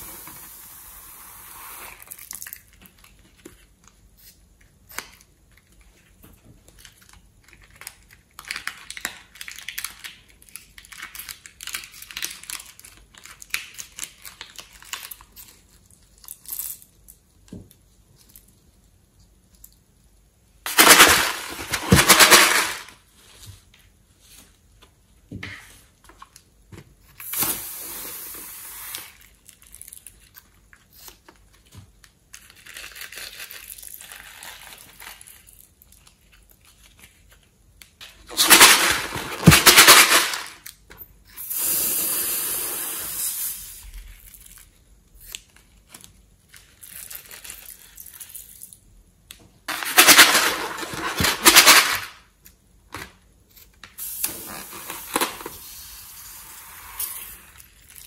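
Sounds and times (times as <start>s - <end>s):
balloon and piping bag squeezing: 0.0s - 2.7s, 32.4s - 36.0s, 41.3s - 45.4s, 54.0s - 58.0s.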